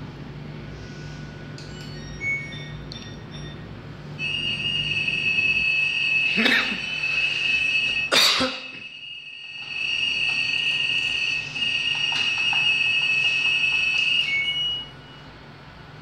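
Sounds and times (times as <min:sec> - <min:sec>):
washing machine beeper tone: 0:01.3 - 0:15.9.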